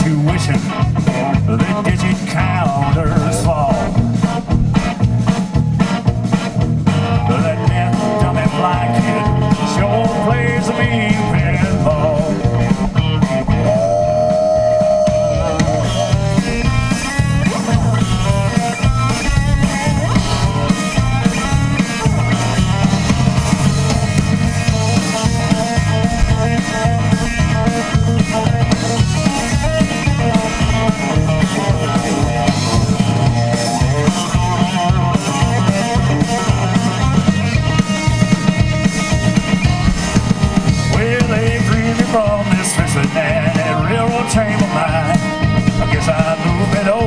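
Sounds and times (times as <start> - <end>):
bass guitar: 0.0 - 47.0
drum kit: 0.0 - 47.0
electric guitars: 0.0 - 47.0.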